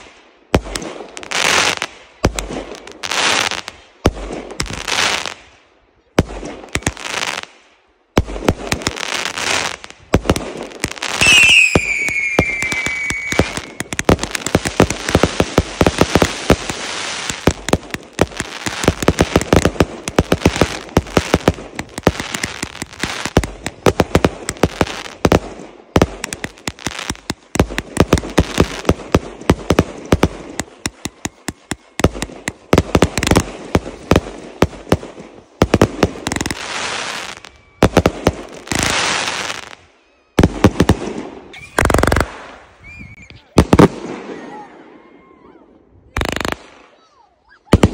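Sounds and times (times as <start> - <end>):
fireworks popping and crackling: 0.0 - 5.5, 6.2 - 39.8, 40.4 - 44.4, 46.1 - 47.0
firework whistle falling in pitch: 11.2 - 13.8.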